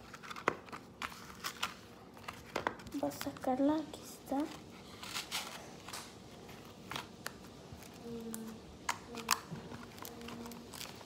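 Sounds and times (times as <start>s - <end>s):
plastic cup crinkling: 4.4s - 11.0s.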